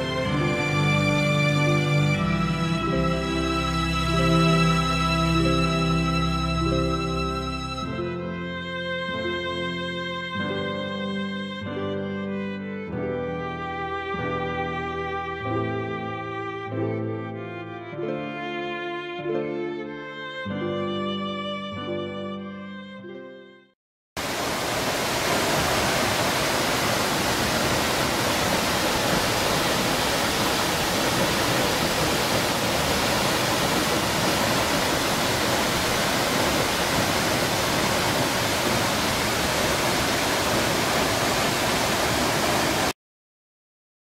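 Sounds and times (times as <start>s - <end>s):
waterfall rushing: 0.0s - 7.2s, 24.2s - 42.9s.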